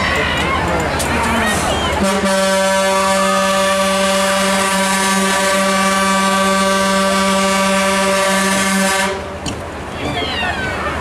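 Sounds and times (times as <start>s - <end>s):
long steady horn blast: 2.0s - 9.4s.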